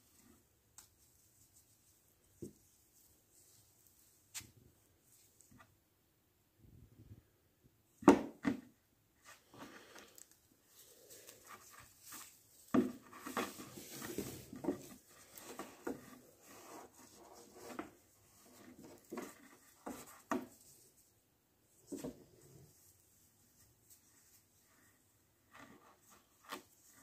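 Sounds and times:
rope rubbing and rustling: 0.0s - 5.7s, 9.2s - 27.0s.

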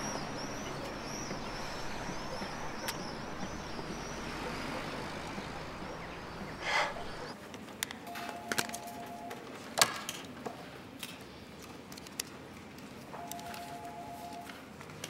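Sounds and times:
small birds chirping: 0.0s - 7.4s
traffic hum: 0.0s - 7.4s.

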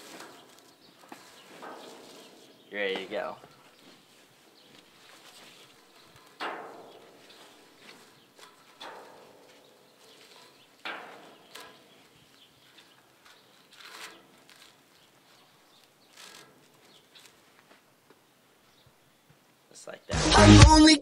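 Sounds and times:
rope rasping against metal rail: 12.8s - 15.0s, 16.0s - 17.3s.

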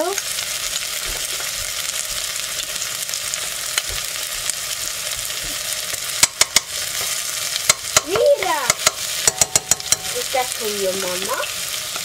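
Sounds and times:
onion and garlic sizzling in oil: 0.0s - 12.0s
metal spoon knocking pot: 6.2s - 6.7s, 7.7s - 10.3s.

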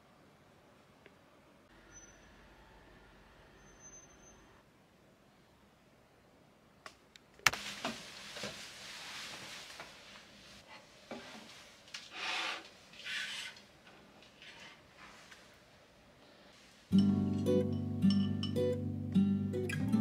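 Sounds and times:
rustling: 7.4s - 15.6s.

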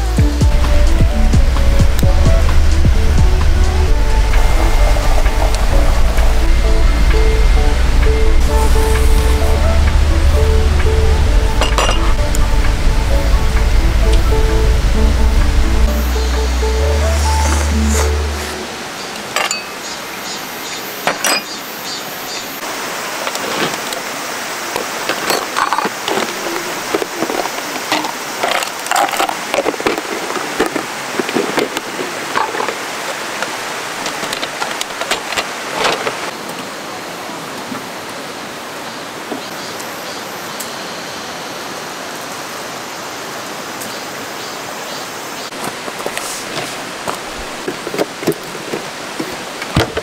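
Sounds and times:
stream rushing: 0.0s - 50.0s
camp gear clinking: 11.6s - 12.2s, 19.2s - 20.0s, 21.0s - 21.6s, 24.7s - 36.3s.

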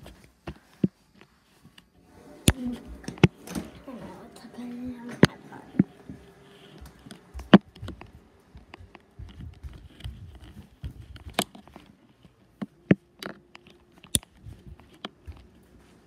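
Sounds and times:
fabric rustling and rubbing: 0.0s - 7.0s, 9.1s - 12.6s.

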